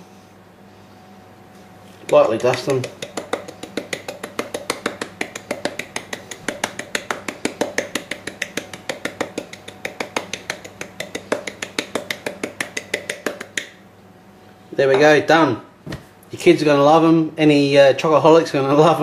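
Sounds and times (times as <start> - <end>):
metal shaker clicking: 2.0 - 13.7.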